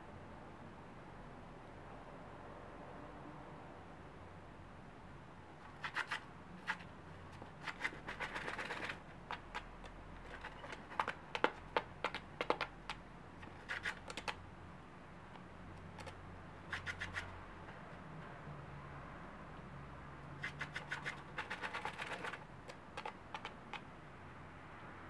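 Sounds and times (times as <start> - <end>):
bird scratching in sand: 5.6 - 12.7, 13.4 - 14.4, 16.0 - 17.4, 20.4 - 23.6.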